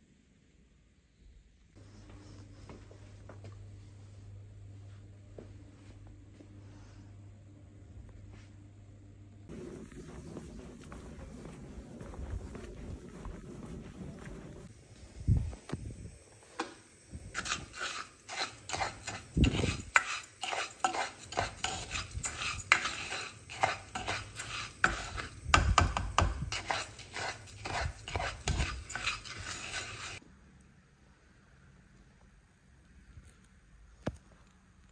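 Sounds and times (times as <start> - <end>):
spoon stirring rice in a saucepan: 16.4 - 30.2.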